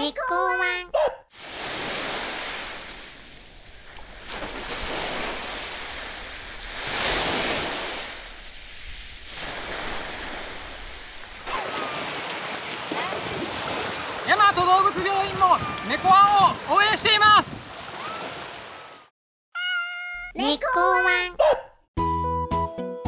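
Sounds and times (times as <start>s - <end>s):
sea surf washing: 1.4s - 19.1s.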